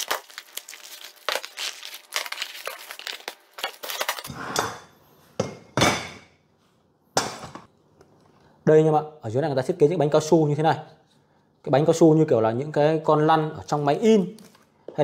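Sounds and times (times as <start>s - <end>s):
packaging crinkling and rustling: 0.0s - 4.3s.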